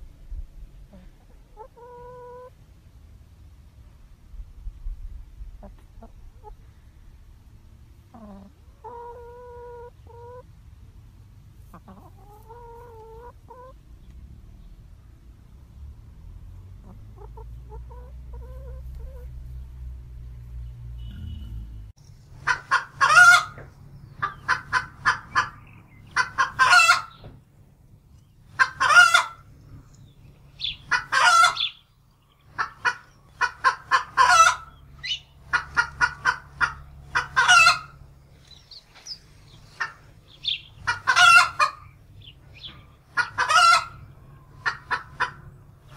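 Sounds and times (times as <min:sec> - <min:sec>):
chickens clucking and cackling: 0:00.0 - 0:15.8, 0:16.4 - 0:19.9, 0:22.1 - 0:45.9.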